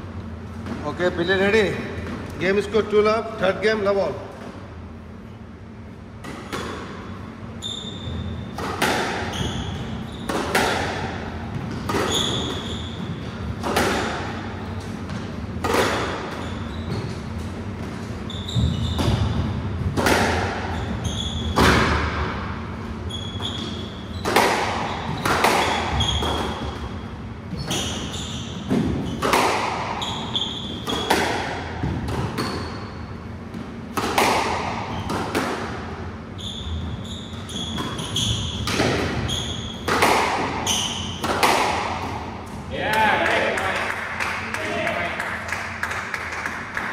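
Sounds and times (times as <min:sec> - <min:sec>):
shoes squeaking on wooden floor: 0:07.6 - 0:08.5, 0:09.3 - 0:10.4, 0:11.6 - 0:13.3, 0:16.3 - 0:17.5, 0:18.2 - 0:19.4, 0:20.7 - 0:21.6, 0:23.0 - 0:26.7, 0:27.5 - 0:29.3, 0:36.4 - 0:39.9
squash ball cracking off rackets: 0:39.8 - 0:42.6.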